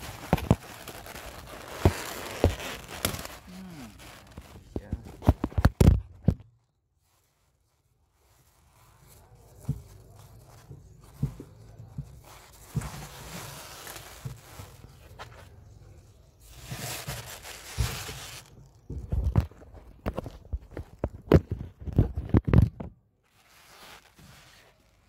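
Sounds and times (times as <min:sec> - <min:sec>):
dull thumps and knocks: 0:09.6 - 0:13.4.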